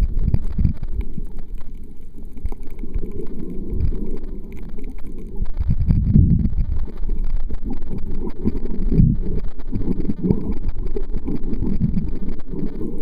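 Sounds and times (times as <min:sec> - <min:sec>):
muffled underwater water noise: 0:00.0 - 0:13.0.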